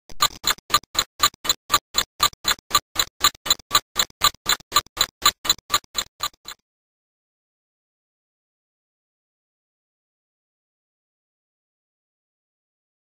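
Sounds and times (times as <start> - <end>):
clock ticking: 0.1 - 6.6.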